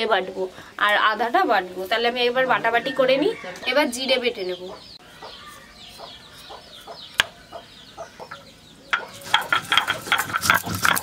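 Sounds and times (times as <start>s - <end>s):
stone grinder scraping: 9.1s - 11.0s.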